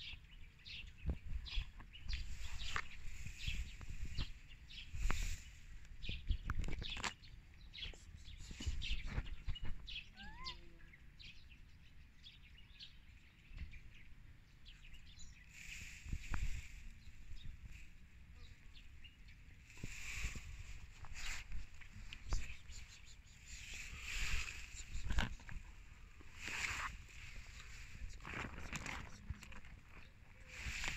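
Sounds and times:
birds chirping: 0:00.0 - 0:30.9
rustling and knocks on microphone: 0:06.0 - 0:07.2, 0:08.6 - 0:10.0.

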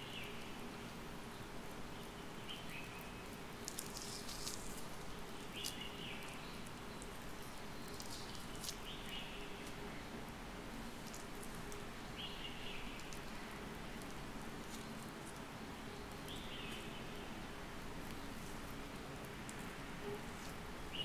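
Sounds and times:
orange segments crackling: 0:03.6 - 0:09.8, 0:12.6 - 0:15.5.

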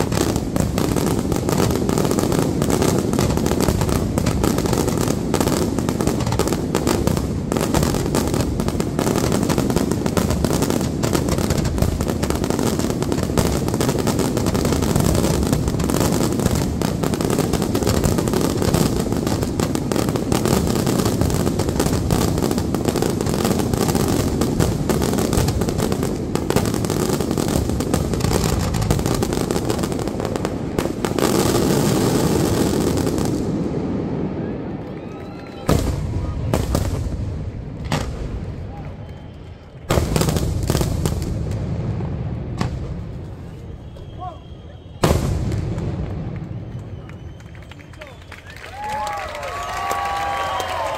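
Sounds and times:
firework bangs: 0:00.0 - 0:50.9
firework crackle: 0:00.0 - 0:50.9.

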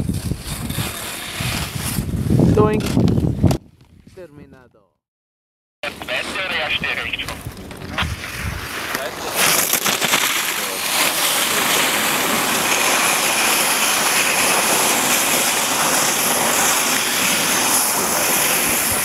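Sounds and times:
skis scraping icy snow: 0:00.0 - 0:02.2, 0:07.9 - 0:19.0.

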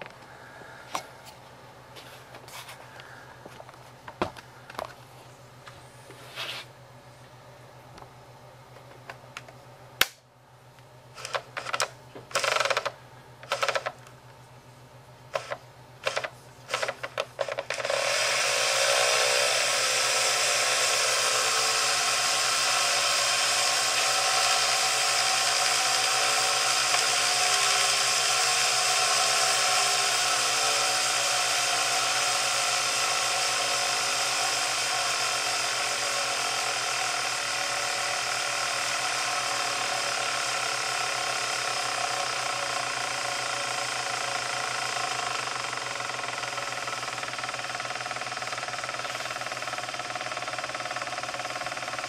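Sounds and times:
motor rotor whirring: 0:11.2 - 0:14.0, 0:15.3 - 0:52.0
motor rotor clicks: 0:11.2 - 0:14.2, 0:15.3 - 0:52.0.

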